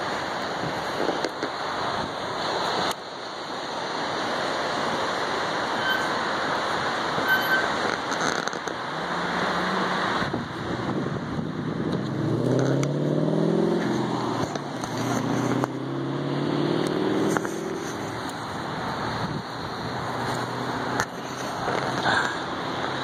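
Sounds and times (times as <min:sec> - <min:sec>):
wind: 0:00.0 - 0:23.0
passing car engine hum: 0:08.7 - 0:23.0.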